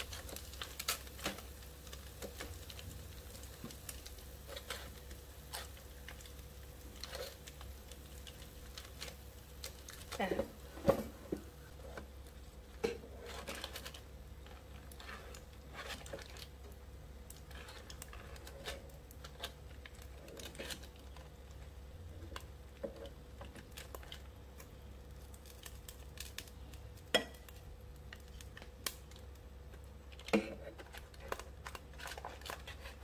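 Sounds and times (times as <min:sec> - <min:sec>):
foil crinkling: 0:00.0 - 0:33.0
tongs clicking and scraping: 0:03.4 - 0:10.2, 0:12.8 - 0:16.5, 0:17.3 - 0:21.3.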